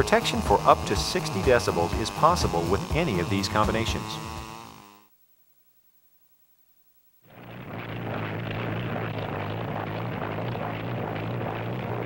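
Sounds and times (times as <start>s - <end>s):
propeller airplane engine droning: 7.4s - 12.0s.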